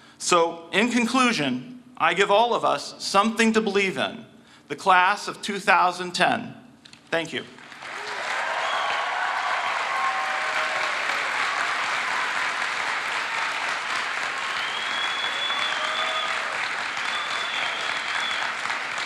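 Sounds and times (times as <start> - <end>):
crowd applauding: 7.5 - 19.0
high whistles: 14.4 - 18.7.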